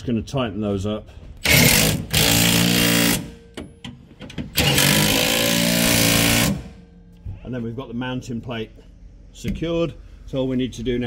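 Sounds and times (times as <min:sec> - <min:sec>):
impact wrench bursts: 0:01.4 - 0:03.6, 0:04.5 - 0:06.9.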